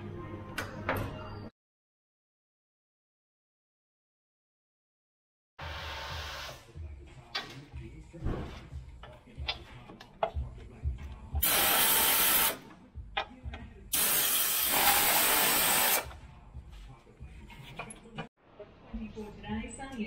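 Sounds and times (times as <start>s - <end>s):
pneumatic air tool hissing: 11.4s - 12.6s, 13.9s - 16.1s.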